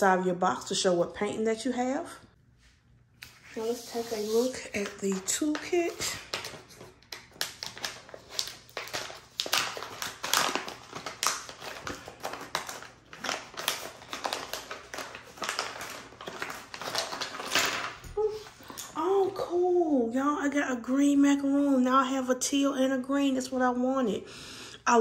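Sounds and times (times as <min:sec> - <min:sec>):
plastic pouch crinkling: 0:04.5 - 0:18.0.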